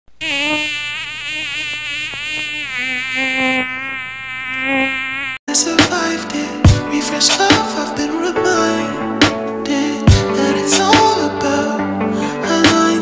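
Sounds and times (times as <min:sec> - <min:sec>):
music with a beat: 0:05.8 - 0:07.9, 0:10.1 - 0:11.3, 0:12.6 - 0:13.0.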